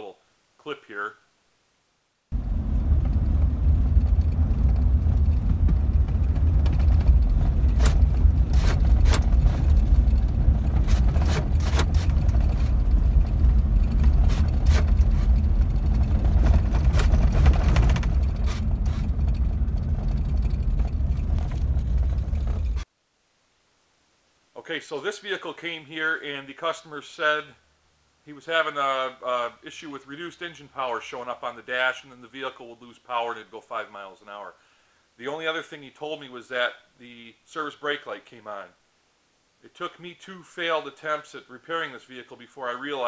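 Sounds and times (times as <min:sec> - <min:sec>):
engine and road rumble: 0:02.3 - 0:22.9
knocks and rattles: 0:02.4 - 0:22.9.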